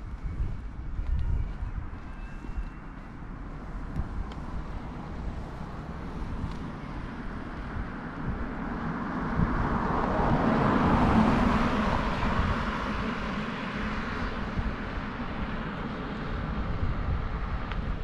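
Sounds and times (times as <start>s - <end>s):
wind rumble on microphone: 0.0s - 18.0s
car passing: 2.0s - 18.0s.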